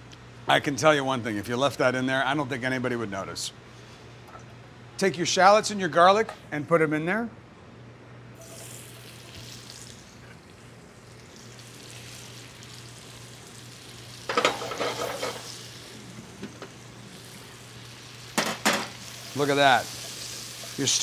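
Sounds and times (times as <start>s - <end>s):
shallots sizzling in oil: 8.4s - 21.0s.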